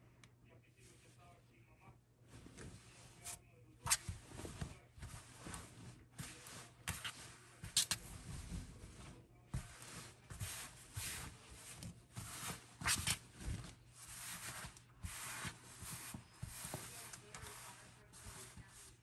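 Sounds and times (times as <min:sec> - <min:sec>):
faint low hum: 0:00.0 - 0:11.4
fabric rustling and swishing: 0:02.3 - 0:19.0.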